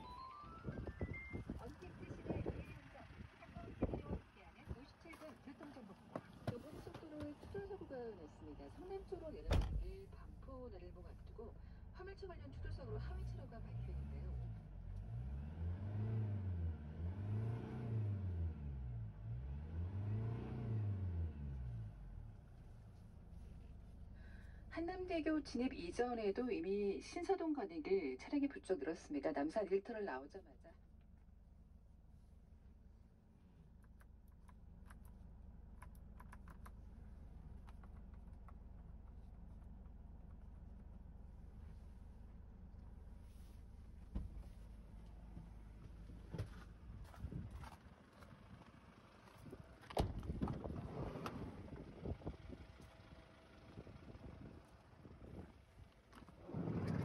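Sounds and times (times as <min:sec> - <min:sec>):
van engine revving: 0:00.1 - 0:05.0, 0:12.3 - 0:22.4, 0:40.8 - 0:57.0.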